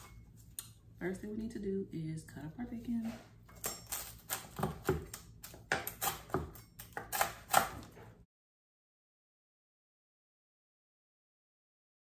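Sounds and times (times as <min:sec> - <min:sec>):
knife chopping on wooden board: 0:03.6 - 0:08.1.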